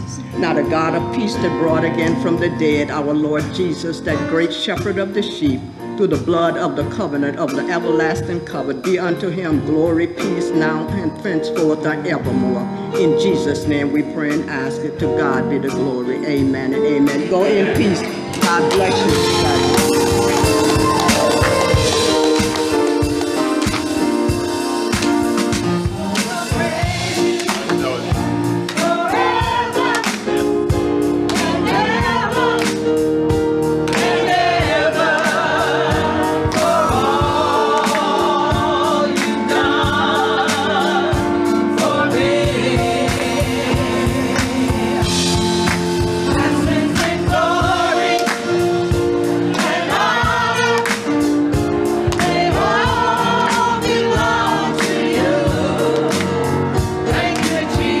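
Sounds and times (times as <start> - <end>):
gospel choir singing: 16.4 - 58.0.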